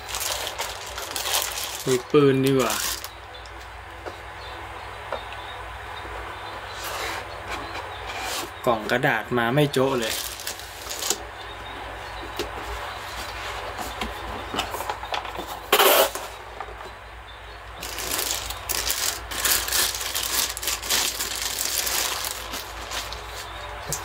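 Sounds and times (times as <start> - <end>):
packaging rustling and clicking: 0.0 - 3.2, 10.0 - 11.2, 17.8 - 24.0.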